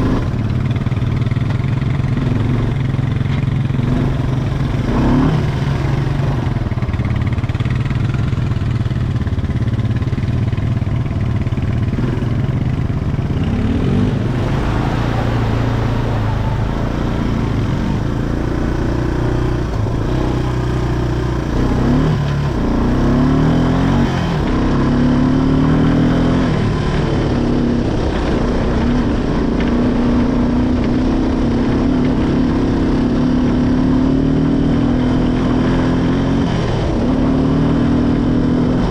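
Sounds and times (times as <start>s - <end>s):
atv engine revving: 0.0s - 38.9s
steady low drone: 11.5s - 33.8s.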